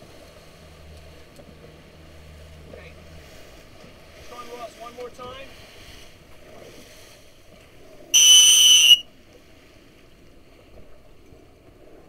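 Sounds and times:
wind and water noise: 0.0 - 12.0
hand whistle blast: 8.2 - 9.0.

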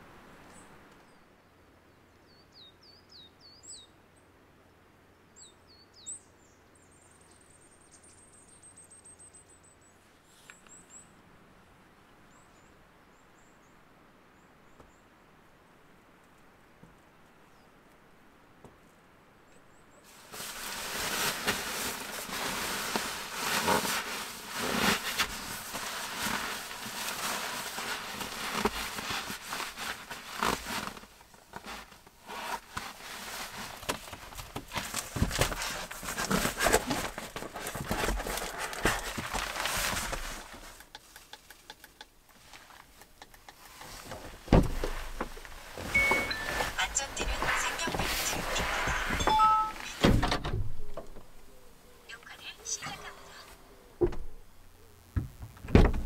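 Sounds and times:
nylon fabric rustling: 20.1 - 40.8, 43.9 - 50.0.

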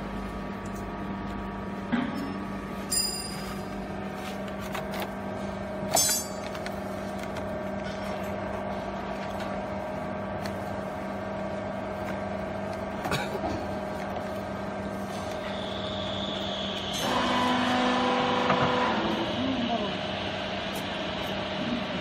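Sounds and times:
sharp metallic clink: 2.9 - 3.5, 5.9 - 6.4.

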